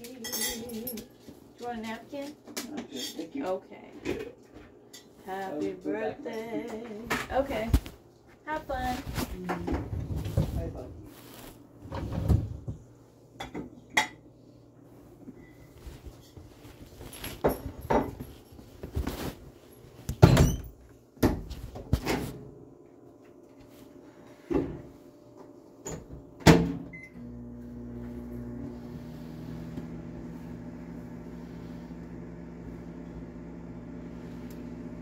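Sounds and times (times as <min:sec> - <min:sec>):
appliance hum: 0:00.0 - 0:35.0.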